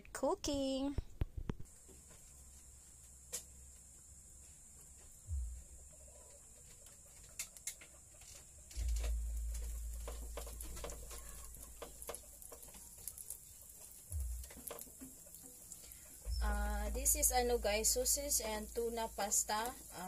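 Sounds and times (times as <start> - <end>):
low rumble: 5.3 - 5.9, 8.8 - 12.0, 14.1 - 14.5, 16.3 - 18.8
spatula scraping and tapping pan: 8.8 - 16.0
butter crackling in a pan: 8.8 - 20.0.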